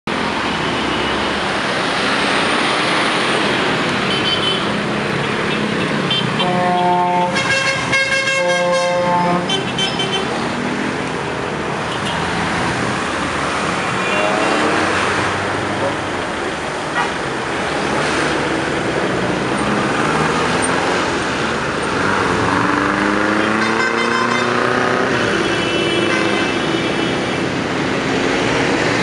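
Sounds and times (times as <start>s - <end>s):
busy road traffic: 0.0s - 29.0s
vehicle horn toots: 6.1s - 10.3s, 23.6s - 24.6s, 25.4s - 27.0s.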